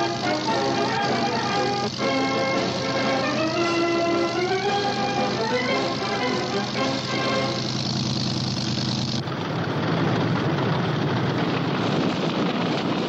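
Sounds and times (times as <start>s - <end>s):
aircraft engines droning: 0.0s - 13.0s
tank engine running: 0.0s - 13.0s.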